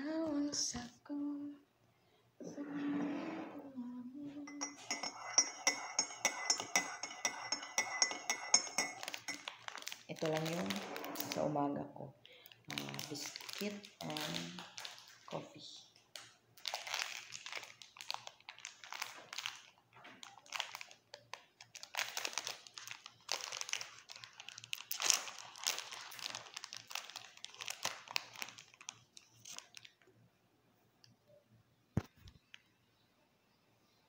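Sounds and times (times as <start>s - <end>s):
plastic wrapper crinkling: 8.5s - 11.6s, 12.2s - 30.1s.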